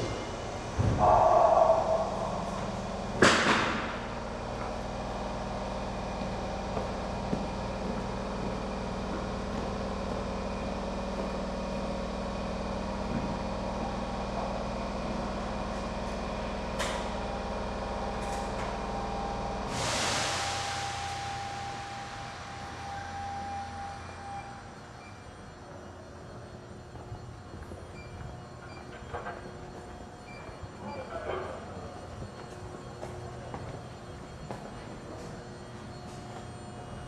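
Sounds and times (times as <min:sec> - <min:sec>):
electric train humming: 0:00.0 - 0:37.0
compressed air hissing: 0:19.7 - 0:21.2.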